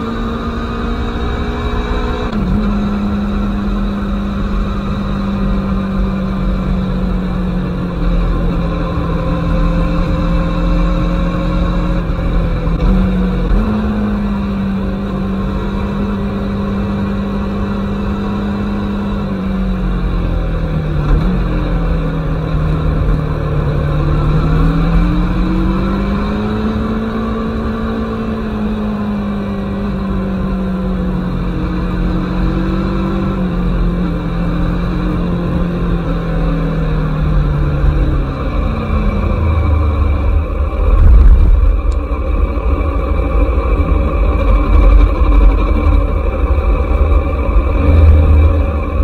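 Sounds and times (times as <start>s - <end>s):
motorcycle engine at speed: 0.0s - 49.0s
wind rush: 37.6s - 49.0s.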